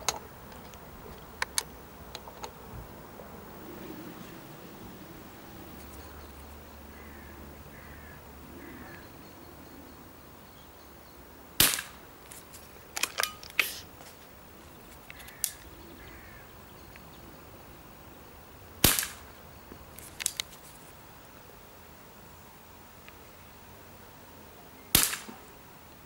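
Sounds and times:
air pistol shot crack: 11.6s - 12.0s, 18.8s - 19.3s, 24.9s - 25.4s.

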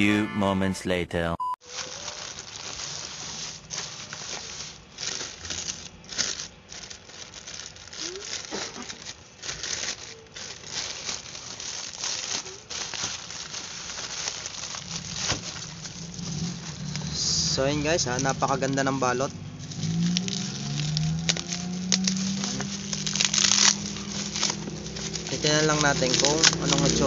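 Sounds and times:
plastic pouch crinkling torn open: 1.6s - 17.2s, 19.6s - 27.0s.

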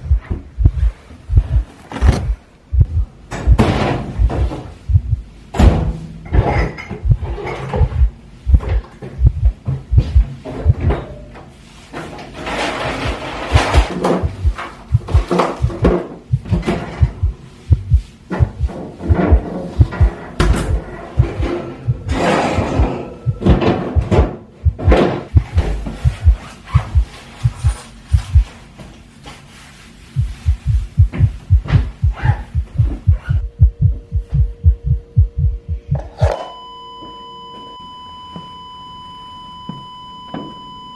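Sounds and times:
pounding heartbeat: 0.0s - 5.3s, 6.9s - 10.9s, 13.5s - 28.5s, 30.2s - 36.1s
rummaging through cupboards: 8.6s - 17.0s, 18.2s - 28.6s
faint steady tone: 33.4s - 40.9s
high ringing tone: 33.5s - 40.9s.

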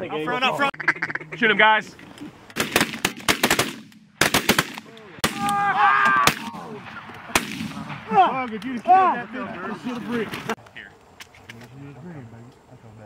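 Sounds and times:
shotguns firing: 2.6s - 5.6s, 6.2s - 8.5s.

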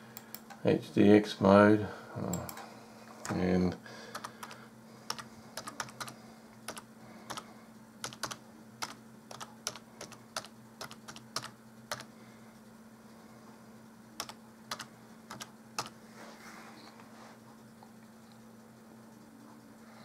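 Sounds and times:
faint steady hum: 0.0s - 20.0s
typing on keyboard: 4.1s - 7.4s, 8.0s - 12.1s, 14.2s - 16.0s.

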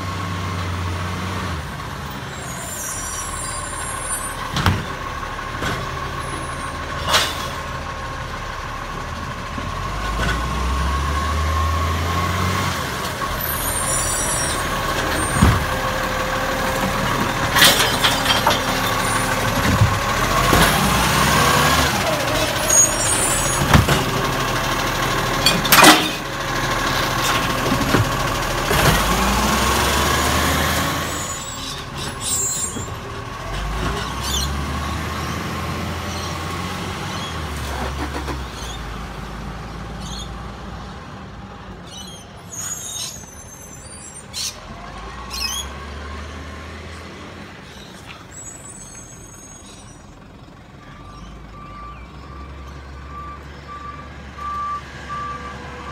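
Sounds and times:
garbage truck idling: 1.6s - 12.1s, 12.9s - 37.5s, 47.4s - 53.8s
bins banging against metal: 25.4s - 26.3s.

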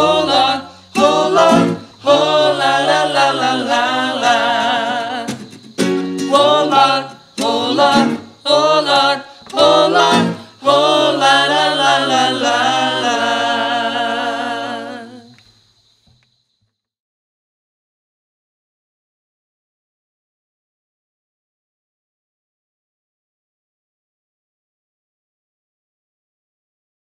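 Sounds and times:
voices singing in harmony: 0.0s - 15.4s.

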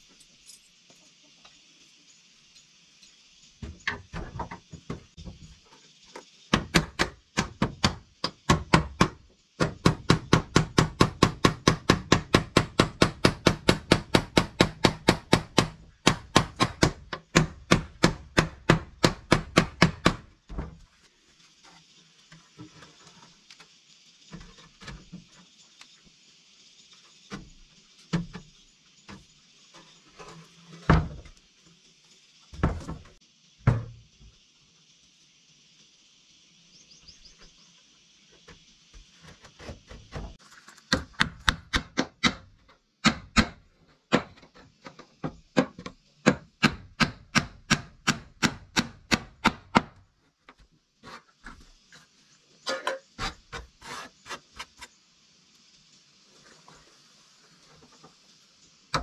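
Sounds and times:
tool striking wood: 6.5s - 20.2s, 39.9s - 44.4s, 45.6s - 50.0s.

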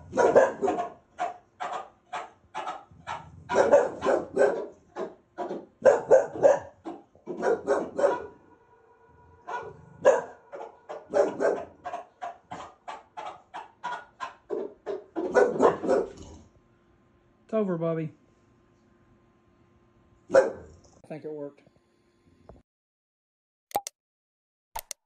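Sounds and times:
dog barking: 0.0s - 8.5s, 9.4s - 16.3s, 20.3s - 20.8s.

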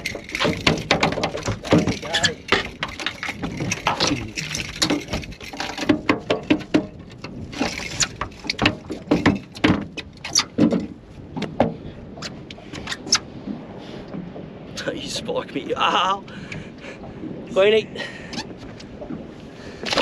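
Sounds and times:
water splash: 0.0s - 6.7s
knocks and slaps on aluminium boat: 0.0s - 14.5s, 18.2s - 20.0s.

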